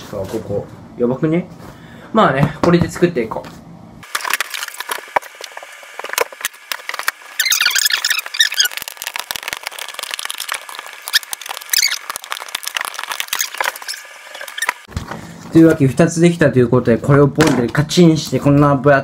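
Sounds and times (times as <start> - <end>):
high squeaky chirps: 7.3 - 14.9.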